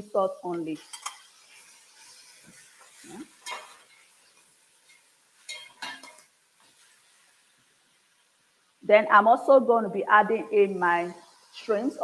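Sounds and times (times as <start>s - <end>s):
faint sizzle: 0.0s - 12.0s
spatula scraping metal pot: 4.8s - 6.8s.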